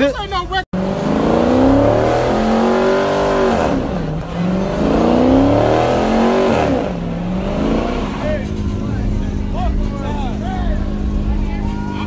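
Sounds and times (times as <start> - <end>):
car engine revving hard: 0.8 - 11.7
tyres spinning in burnout: 0.8 - 12.0.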